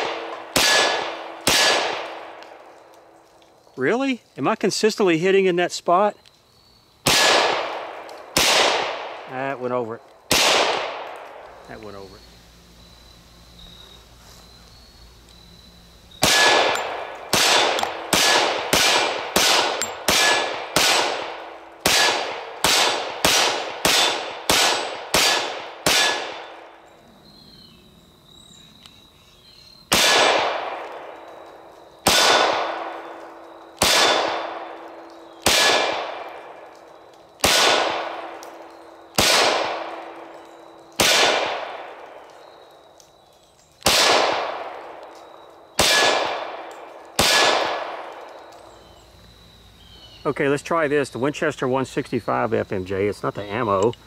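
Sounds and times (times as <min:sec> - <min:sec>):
pistol shots with echo: 0:00.0 - 0:02.4, 0:07.0 - 0:09.3, 0:10.3 - 0:11.4, 0:16.2 - 0:26.6, 0:29.9 - 0:31.2, 0:32.0 - 0:36.6, 0:37.4 - 0:38.4, 0:39.1 - 0:40.3, 0:41.0 - 0:42.0, 0:43.8 - 0:45.0, 0:45.8 - 0:48.3.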